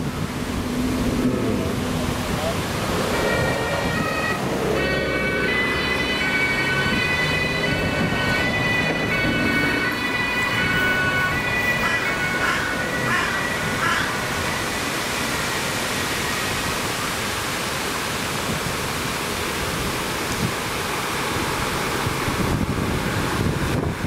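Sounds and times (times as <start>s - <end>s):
road traffic passing: 0.0s - 24.0s
two-tone siren: 3.0s - 17.7s.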